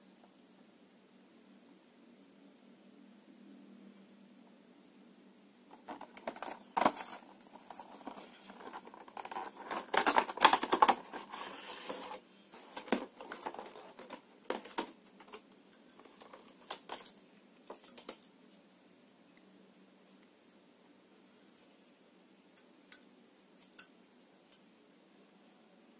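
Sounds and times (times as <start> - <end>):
packaging clicks: 5.7 - 15.4
plastic packaging crinkling: 5.7 - 18.2.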